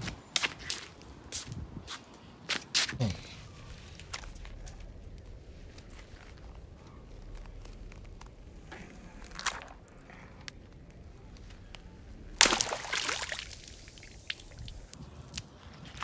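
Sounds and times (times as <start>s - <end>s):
water balloon bursting: 12.4s - 15.5s
water splashing onto concrete: 12.4s - 16.0s.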